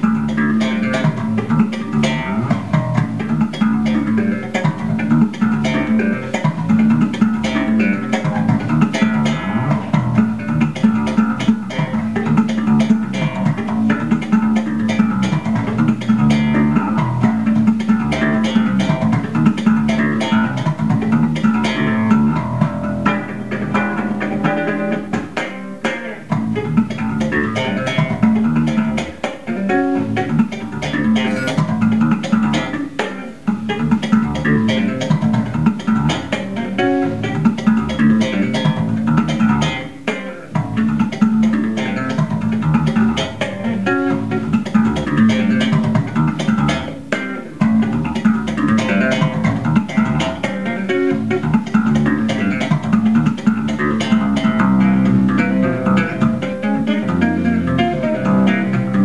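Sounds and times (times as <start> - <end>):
electric bass guitar line: 0.0 - 59.0.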